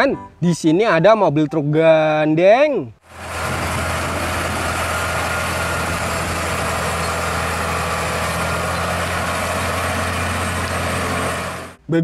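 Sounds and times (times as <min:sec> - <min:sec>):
truck diesel engine droning: 0:03.0 - 0:11.8.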